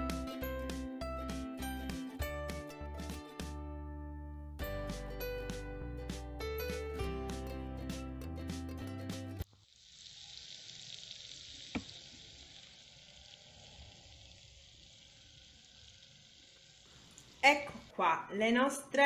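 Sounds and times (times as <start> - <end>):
background music: 0.0 - 9.4
faint sizzling in baking dish: 9.4 - 17.9.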